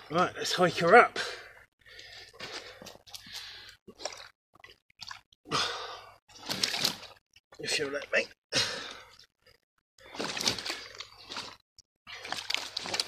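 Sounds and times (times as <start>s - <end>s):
man breathing noisily: 1.2s - 3.8s
wet squelching and dripping: 1.8s - 7.6s, 8.9s - 13.0s.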